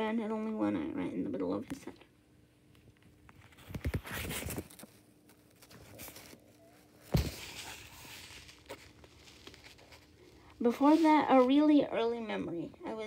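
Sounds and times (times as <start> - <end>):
paper rustling: 3.3 - 11.8.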